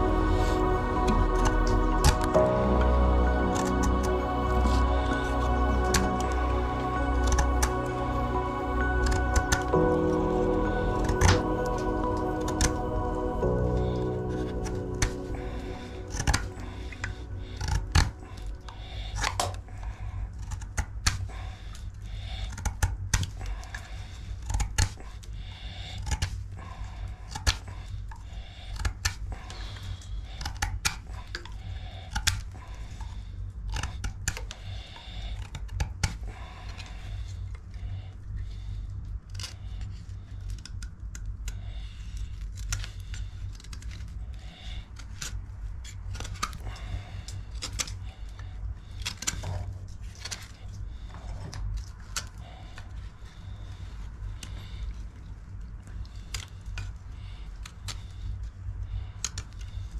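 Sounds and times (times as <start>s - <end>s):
steady low rumble: 0.0s - 30.4s, 31.0s - 59.9s
knife clicking and scraping wood: 20.4s - 21.8s, 22.5s - 25.0s, 26.0s - 26.4s, 28.7s - 29.2s, 30.4s - 32.5s, 39.3s - 39.6s.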